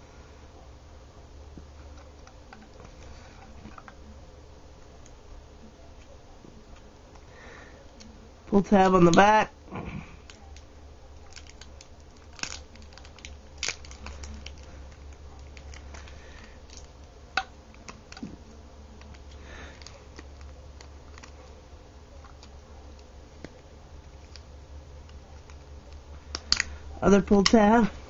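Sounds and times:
low steady hum: 0.0s - 28.0s
packaging crinkling: 10.2s - 21.6s, 22.2s - 28.0s.

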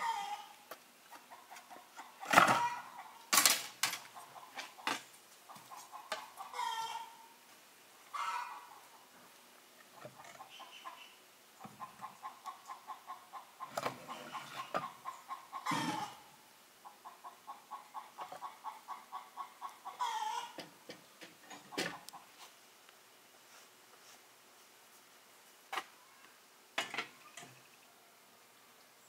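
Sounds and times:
hens clucking: 0.0s - 3.3s, 4.0s - 7.3s, 8.1s - 22.5s.

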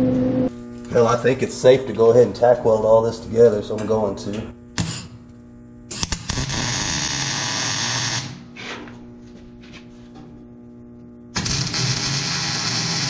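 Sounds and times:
steady hum: 0.0s - 13.0s
welder crackling hiss: 5.9s - 8.4s, 11.4s - 13.0s.

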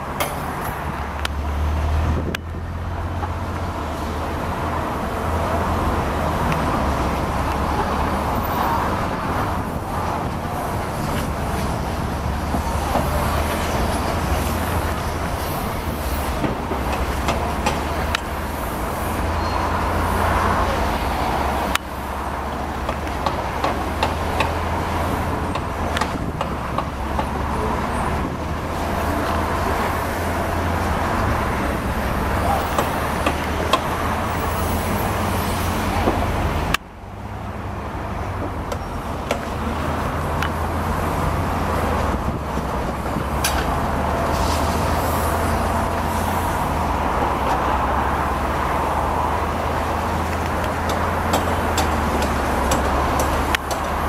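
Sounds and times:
diesel engine drone: 0.0s - 54.0s
sharp metallic knocks: 16.4s - 18.3s, 22.8s - 24.6s, 50.8s - 54.0s.

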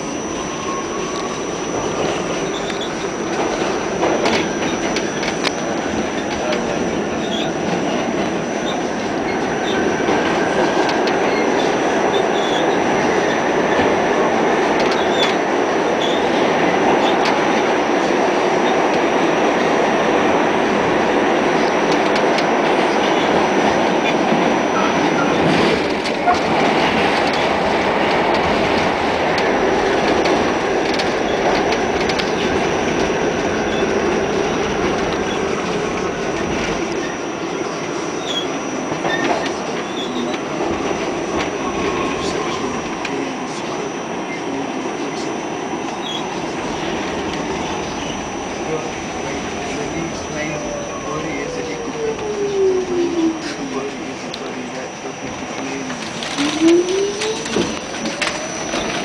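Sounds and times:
subway wheels rumbling on rail: 0.0s - 59.0s
clicks of subway car: 14.6s - 19.7s, 21.6s - 45.3s, 53.0s - 59.0s
faint high whine: 41.3s - 59.0s.

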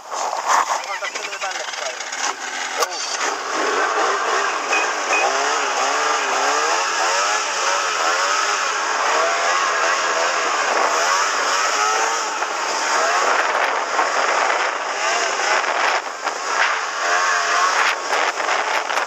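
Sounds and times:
snowmobile engine revving: 0.0s - 19.0s
track rushing over snow: 0.0s - 19.0s.

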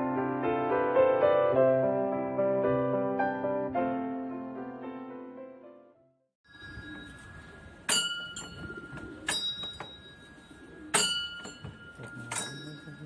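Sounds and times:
piano music: 0.0s - 6.2s
bell dings ringing on: 6.5s - 13.0s.

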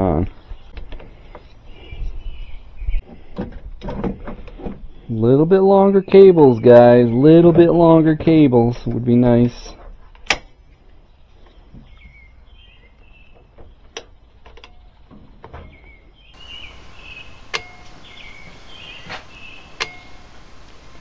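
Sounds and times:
faint high chirps: 16.3s - 21.0s.

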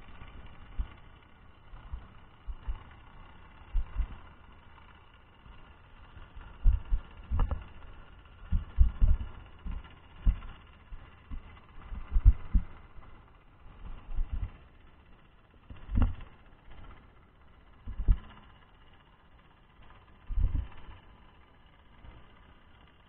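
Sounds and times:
muffled underwater thumps and knocks: 15.9s - 16.2s.

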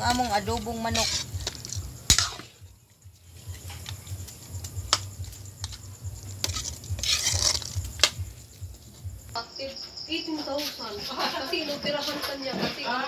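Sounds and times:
metal spatula scraping a wok: 0.0s - 2.6s, 6.4s - 8.1s.

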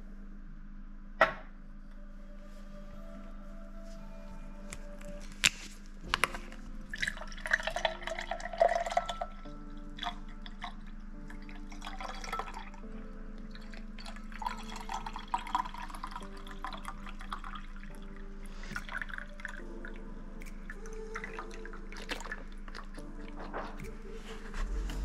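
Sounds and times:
juice pouring into a glass: 6.2s - 20.1s, 20.7s - 23.4s.

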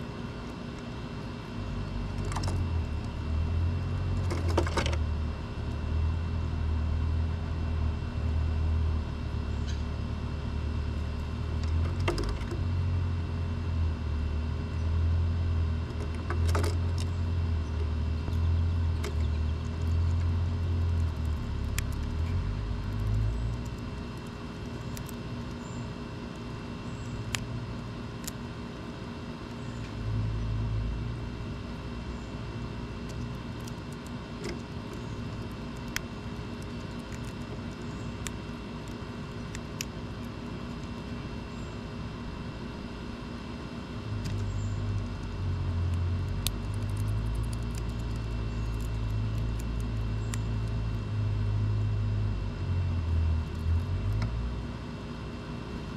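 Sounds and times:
low steady rumble: 0.0s - 55.9s
bird pecking on wooden feeder: 33.0s - 41.0s, 44.3s - 51.0s.

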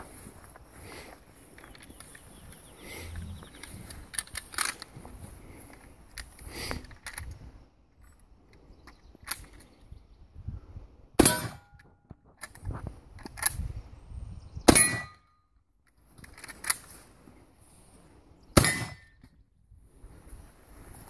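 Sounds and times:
rifle shots: 18.6s - 19.0s.

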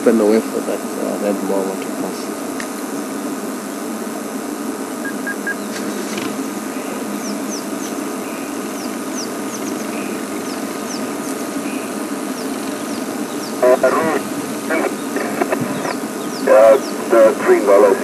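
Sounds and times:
short high falling chirps: 5.0s - 5.7s.

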